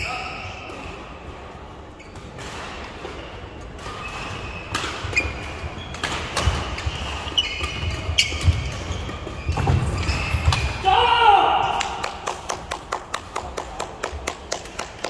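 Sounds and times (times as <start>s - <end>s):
shoes squeaking on court: 2.0s - 2.5s, 3.1s - 10.7s
rackets striking shuttlecock: 3.7s - 10.8s.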